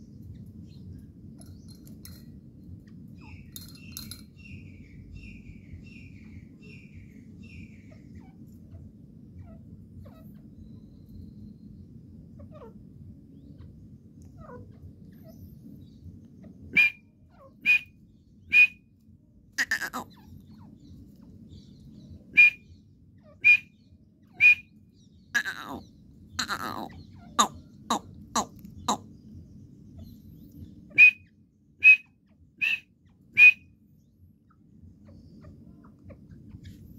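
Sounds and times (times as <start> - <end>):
partridge calling: 16.7 - 18.8, 19.6 - 20.8, 22.4 - 24.8, 25.4 - 29.1, 29.9 - 33.7.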